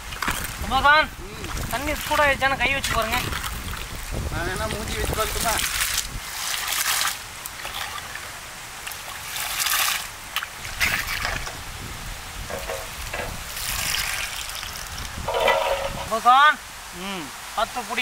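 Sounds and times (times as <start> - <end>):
water sloshing and dripping: 0.0 - 16.4
ladle scooping from pot: 12.4 - 16.1.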